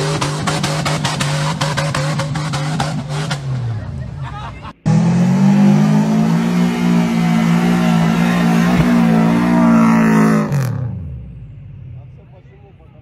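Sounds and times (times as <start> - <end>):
car engine revving high: 4.8 - 11.3.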